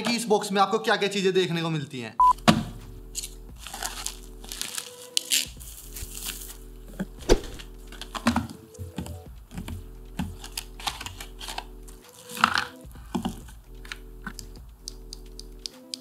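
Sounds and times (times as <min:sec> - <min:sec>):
soft background music: 0:02.2 - 0:16.0
plastic bag rustling: 0:03.6 - 0:06.6, 0:10.3 - 0:12.9.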